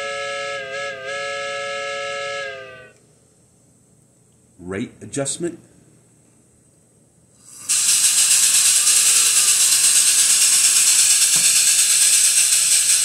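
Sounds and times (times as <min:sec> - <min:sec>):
electronic steam locomotive chuffing: 0:00.0 - 0:02.9, 0:07.4 - 0:13.0.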